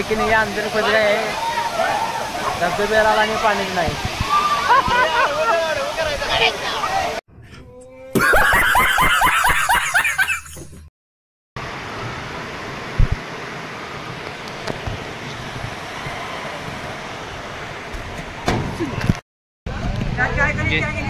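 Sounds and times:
stream running over rocks: 0:00.0 - 0:07.2
burst of laughter: 0:08.2 - 0:10.7
thump: 0:18.4 - 0:18.8.

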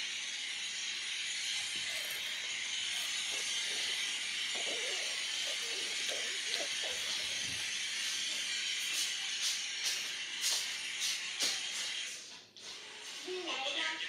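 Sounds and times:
girl humming: 0:04.6 - 0:07.6.

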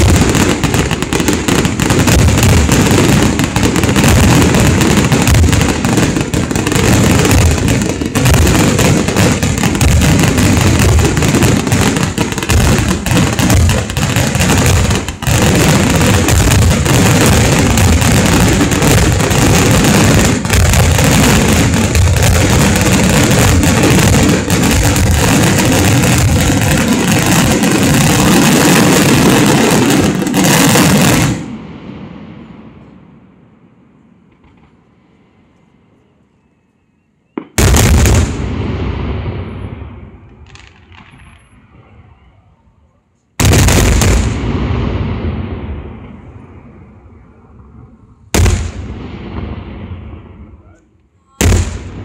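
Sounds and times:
fireworks bursts and bangs: 0:00.0 - 0:32.2, 0:37.4 - 0:42.2, 0:43.4 - 0:46.7, 0:48.3 - 0:52.0.

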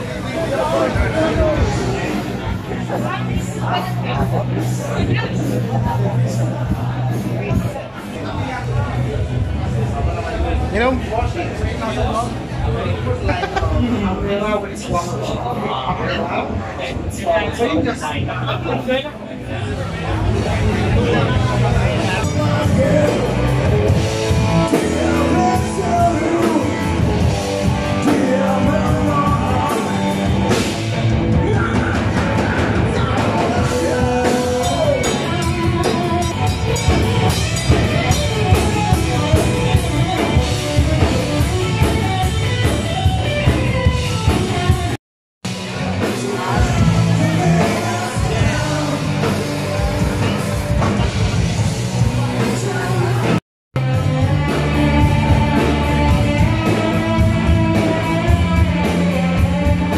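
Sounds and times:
live rock band playing: 0:00.0 - 0:16.2, 0:19.7 - 0:59.9
person singing: 0:22.1 - 0:30.7, 0:31.3 - 0:41.8, 0:45.9 - 0:50.5, 0:52.4 - 0:59.9.

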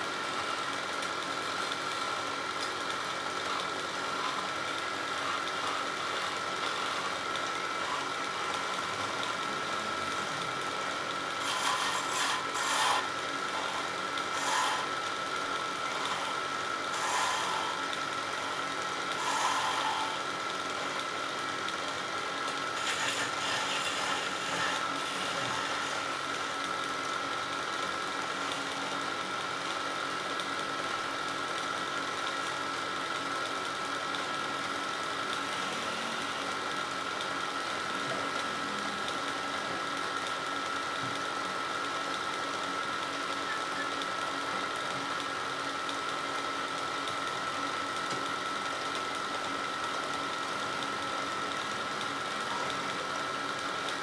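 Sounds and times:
chisel scraping spinning wood: 0:00.0 - 0:41.4
wood lathe humming: 0:00.0 - 0:54.0.

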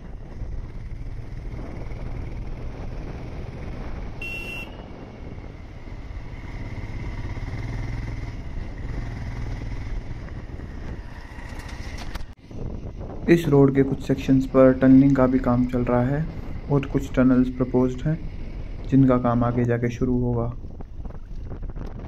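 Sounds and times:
motorcycle engine running: 0:00.0 - 0:12.8
wind and road noise: 0:00.0 - 0:22.0
high-pitched beep: 0:04.2 - 0:04.8.

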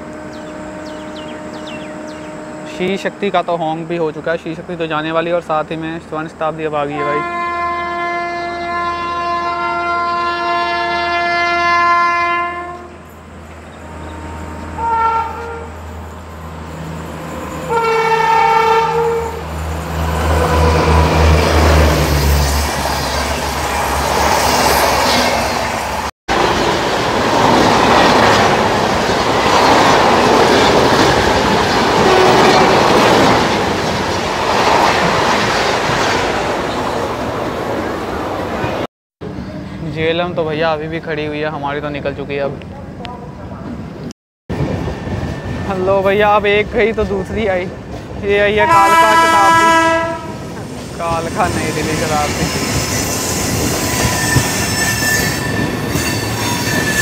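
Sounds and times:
train horn blasts: 0:00.0 - 0:03.4, 0:07.0 - 0:13.1, 0:13.7 - 0:16.0, 0:17.1 - 0:19.6, 0:32.0 - 0:32.8, 0:48.6 - 0:50.5
train rumbling and clattering: 0:14.5 - 0:57.0.

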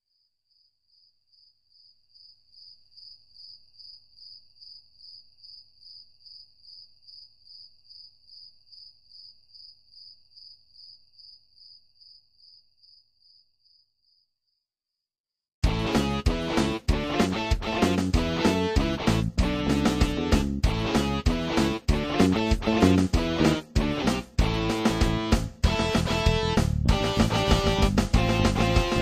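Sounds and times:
faint cricket chirping: 0:00.0 - 0:14.7.

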